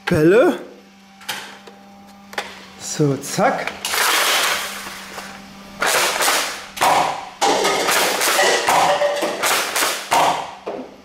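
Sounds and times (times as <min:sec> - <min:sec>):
toy blaster shots: 0:05.8 - 0:10.5.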